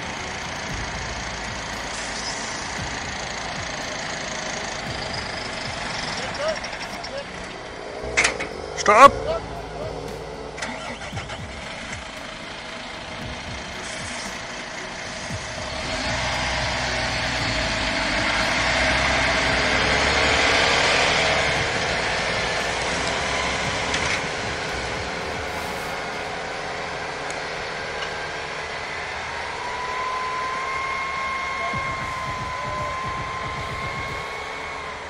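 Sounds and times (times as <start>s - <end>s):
heavy diesel engines under load: 0.0s - 35.0s.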